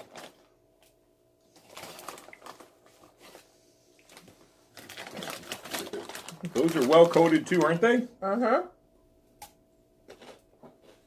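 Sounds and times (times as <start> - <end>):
chip bag crinkling: 0.0 - 0.5, 1.6 - 3.4, 4.0 - 8.0.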